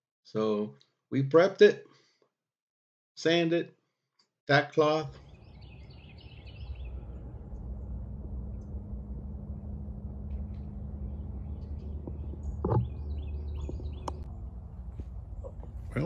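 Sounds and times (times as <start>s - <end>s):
birds chirping: 5.1s - 8.9s, 9.5s - 16.0s
low rumble and hum: 5.2s - 16.0s.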